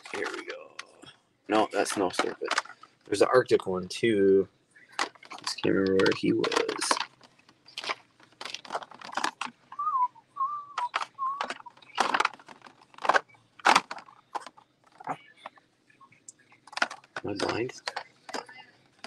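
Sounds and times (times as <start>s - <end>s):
plastic packaging clicking: 1.8s - 2.9s, 5.0s - 9.6s, 10.8s - 15.6s, 16.6s - 19.0s
person whistling: 9.8s - 11.7s.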